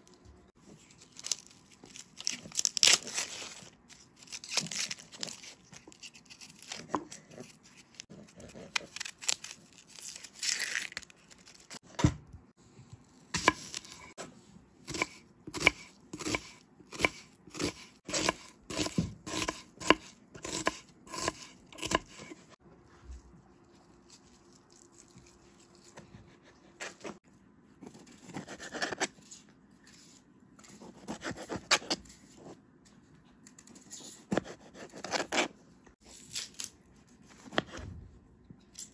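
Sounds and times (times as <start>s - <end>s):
onion skin tearing: 0.9s - 11.8s, 34.4s - 36.8s
knife chopping on wooden board: 14.9s - 22.4s.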